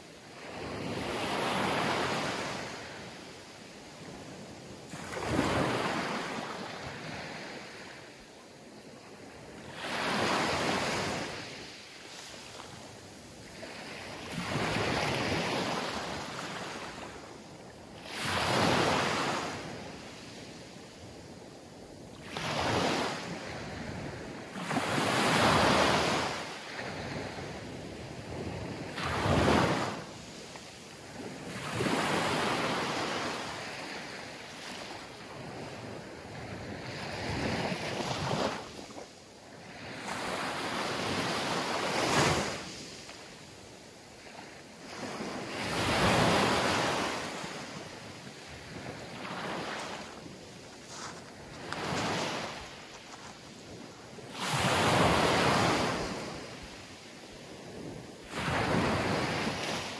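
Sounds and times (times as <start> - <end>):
small waves breaking on beach: 0.0 - 59.9.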